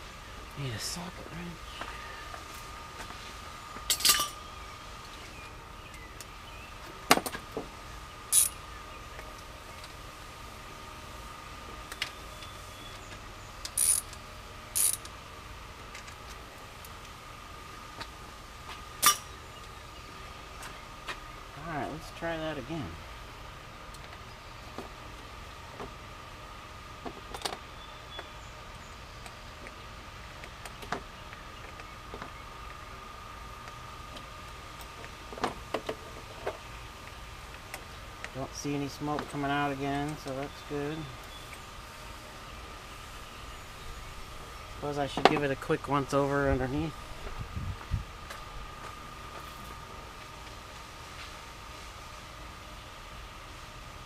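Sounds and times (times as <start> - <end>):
faint high whine: 0.0 - 35.6.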